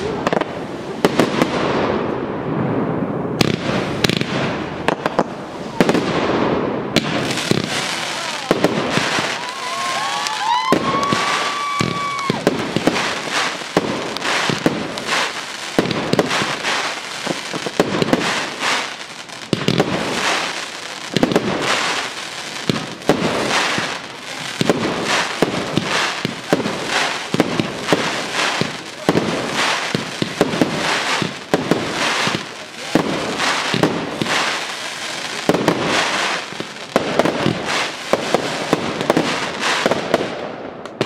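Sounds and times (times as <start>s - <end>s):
fireworks bangs and crackling: 0.0s - 41.0s
firework whistle: 7.4s - 13.6s.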